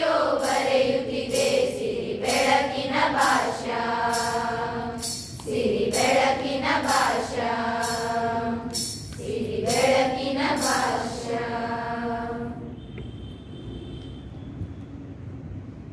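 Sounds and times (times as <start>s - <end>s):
young women singing in unison: 0.0s - 12.7s.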